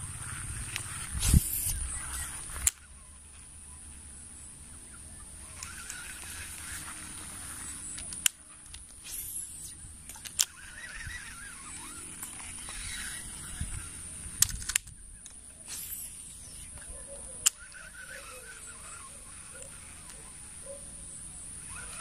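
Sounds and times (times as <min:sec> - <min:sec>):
wavering bird calls: 0:00.2 - 0:08.2, 0:09.0 - 0:14.4, 0:15.0 - 0:22.0
sharp clicks: 0:00.7 - 0:02.9, 0:05.5 - 0:07.1, 0:07.7 - 0:20.2
high-pitched insect drone: 0:09.0 - 0:14.4, 0:15.6 - 0:22.0.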